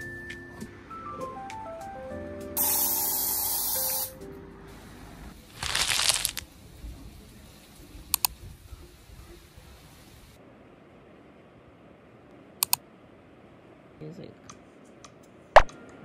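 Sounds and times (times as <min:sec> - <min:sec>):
soft background music: 0:00.0 - 0:05.4
aerosol spray hissing: 0:02.6 - 0:04.2.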